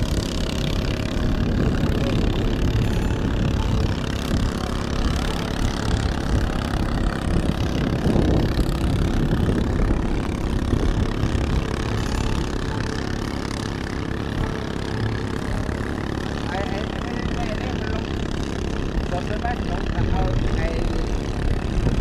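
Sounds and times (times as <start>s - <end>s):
gusty wind buffeting microphone: 0.0s - 12.9s, 18.2s - 22.0s.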